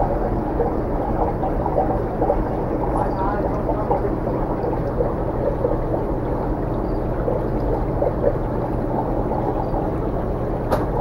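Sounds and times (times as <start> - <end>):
aquarium filter humming and rushing: 0.0 - 11.0.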